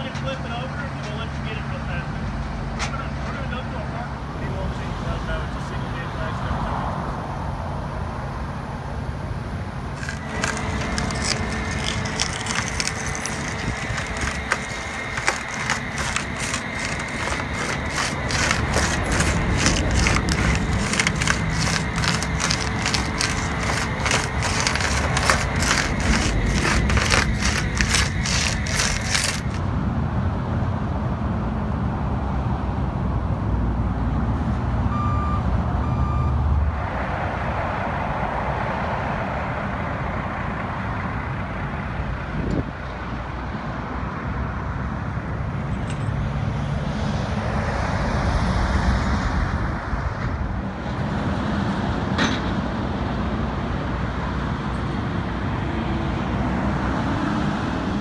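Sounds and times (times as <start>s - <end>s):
low rumble of engines and traffic: 0.0s - 58.0s
short beeps: 34.9s - 36.4s.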